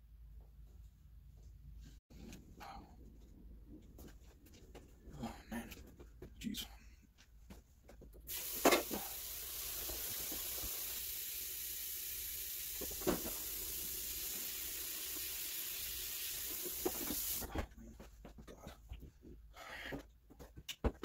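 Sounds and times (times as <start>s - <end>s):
faucet running into steel sink: 8.3s - 17.5s.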